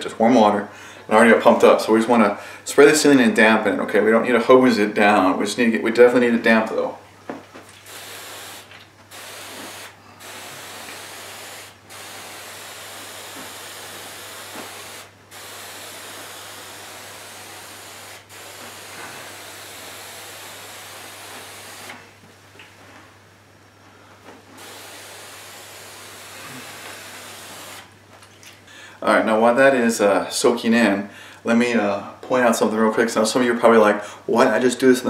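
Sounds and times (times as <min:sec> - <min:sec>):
pump sprayer misting: 0:07.7 - 0:22.1, 0:24.5 - 0:28.0.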